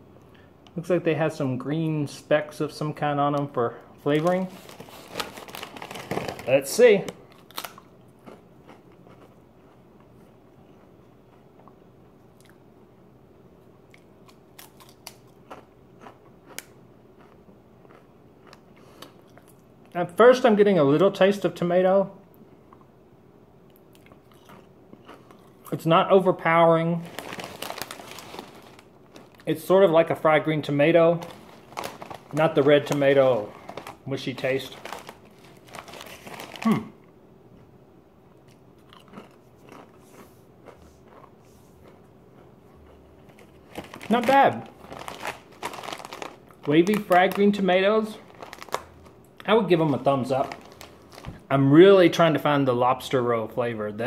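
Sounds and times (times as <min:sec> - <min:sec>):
potato chip crunching: 0:03.2 - 0:09.8, 0:13.9 - 0:19.6, 0:24.0 - 0:36.9, 0:38.5 - 0:51.4.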